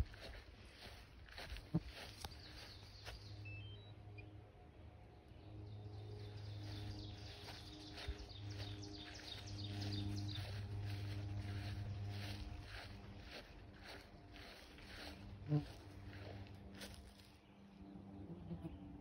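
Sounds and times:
engine hum: 0.0s - 19.0s
bird chirps: 1.8s - 4.4s, 5.5s - 17.0s.

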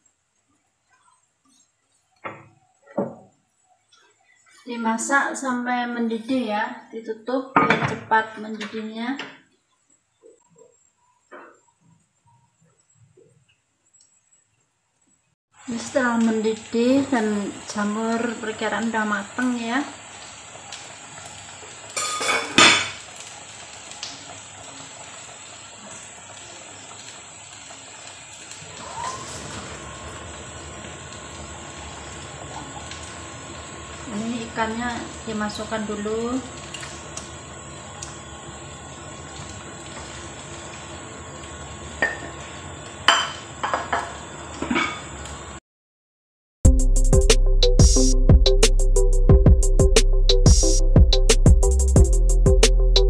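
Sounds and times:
soup boiling in pot: 9.4s - 45.6s
metal kitchenware clattering on pot: 22.0s - 23.0s, 44.6s - 45.1s.

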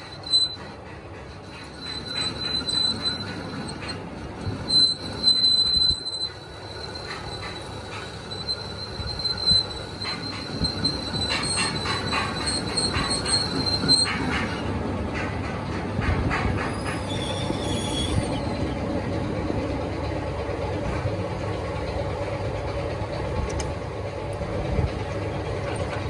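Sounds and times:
metal-on-metal squeal: 0.0s - 15.3s, 16.3s - 18.7s.

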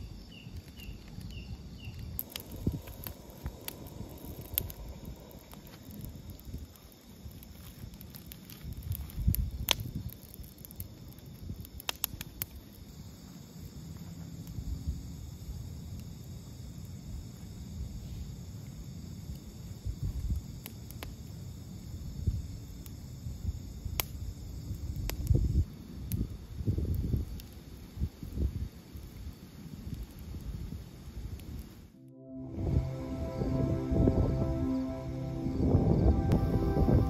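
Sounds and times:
insects chirring: 0.0s - 31.8s
low rumble: 2.2s - 6.7s, 32.0s - 37.0s.

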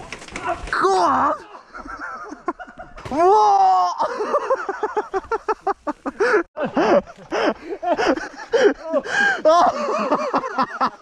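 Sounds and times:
people laughing hard: 1.5s - 3.1s, 4.0s - 11.0s.

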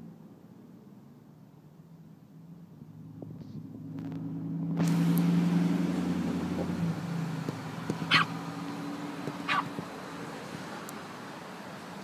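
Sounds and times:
small dog yapping: 8.0s - 8.4s, 9.4s - 9.8s.

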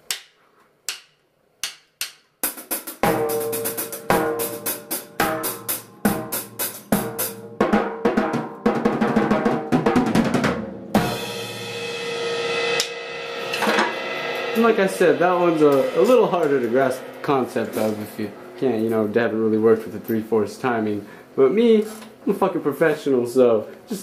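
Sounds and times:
drum kit waltz beat: 2.4s - 21.4s
cymbal crash: 3.0s - 7.5s, 11.0s - 20.5s.

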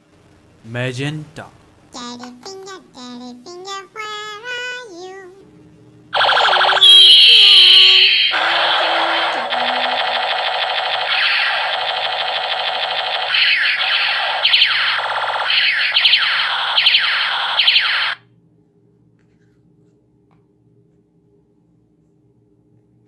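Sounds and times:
toy ray gun electronic zaps: 6.2s - 18.2s.

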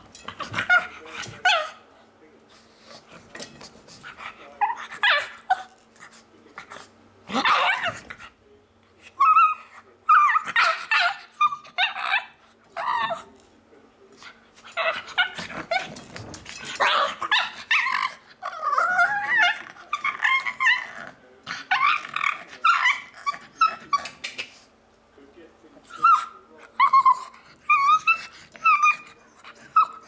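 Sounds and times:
dog squeaky yips and whines: 9.2s - 13.2s, 16.9s - 21.0s, 21.7s - 24.2s, 25.9s - 30.0s.

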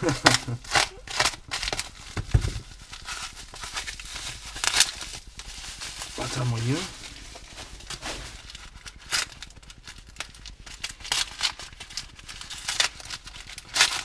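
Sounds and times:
paper and tape crinkling: 0.0s - 14.0s.

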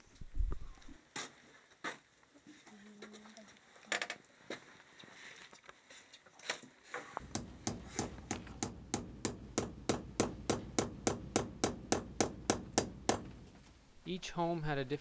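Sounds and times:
hammer hitting nail into wall: 7.2s - 13.6s.

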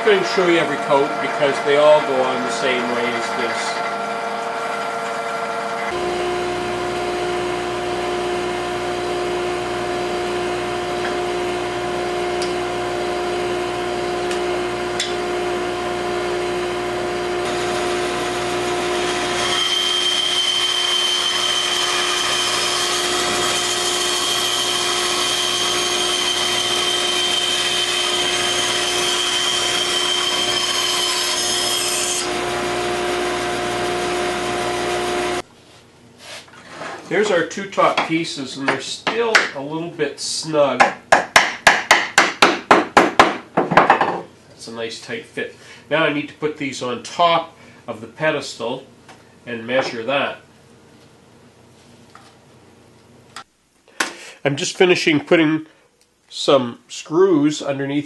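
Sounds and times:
bandsaw cutting wood: 0.0s - 35.4s.

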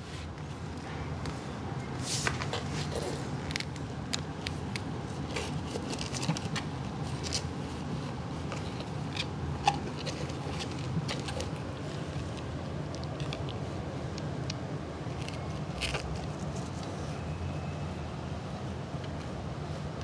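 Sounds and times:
steady low hum: 0.0s - 20.0s
kitten scratching in cardboard box: 4.5s - 14.4s, 15.1s - 17.3s.

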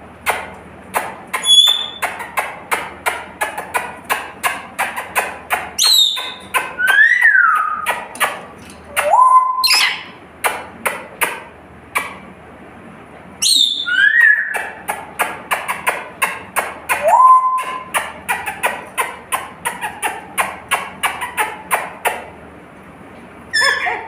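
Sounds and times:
parrot whistling gliding notes: 1.4s - 2.0s, 5.8s - 7.9s, 9.0s - 10.1s, 13.4s - 14.6s, 17.0s - 17.8s.

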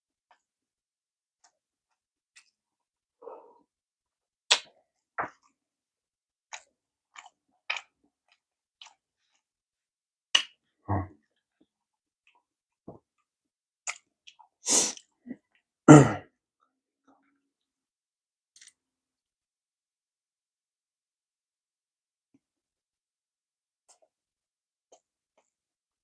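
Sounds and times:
wet mouth clicks: 4.5s - 4.7s, 13.8s - 15.1s.

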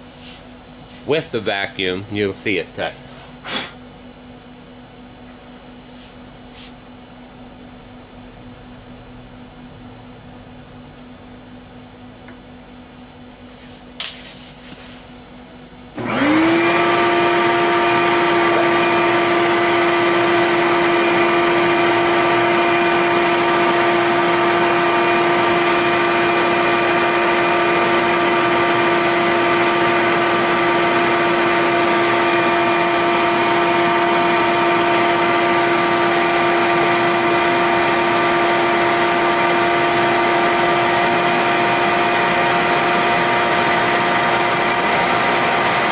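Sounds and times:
shop vacuum motor whine: 15.2s - 45.9s.

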